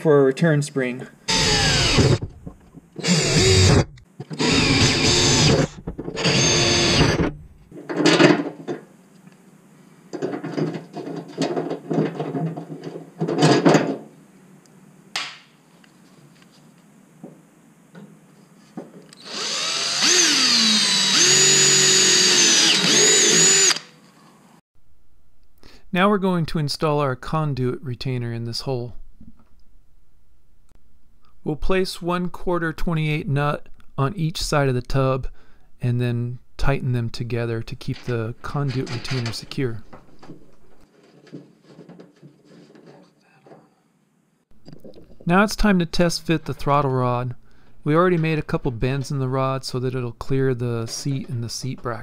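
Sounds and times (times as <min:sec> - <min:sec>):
cordless drill boring plastic: 0:01.3 - 0:02.2, 0:03.0 - 0:07.2, 0:19.2 - 0:23.9.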